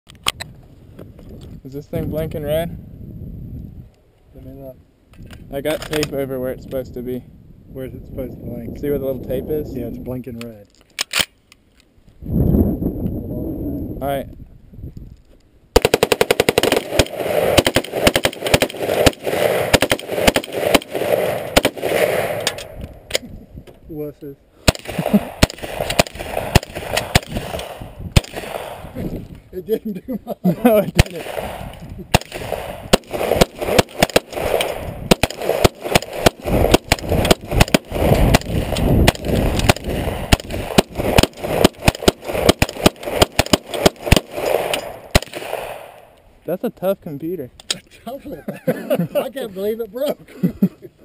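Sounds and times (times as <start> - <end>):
rapid gunfire: 15.8 - 22.5, 24.7 - 29.0, 31.0 - 46.0
automatic rifle fire: 15.8 - 22.8, 24.6 - 29.0, 31.0 - 46.1.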